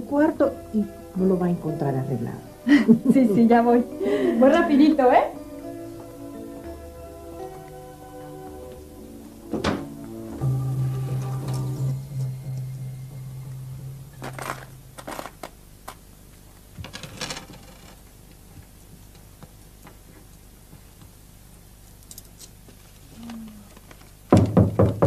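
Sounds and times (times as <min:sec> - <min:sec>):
loud knocks on door: 0:09.5 - 0:09.9, 0:24.3 - 0:25.0
money handled on wooden desk: 0:14.2 - 0:16.0.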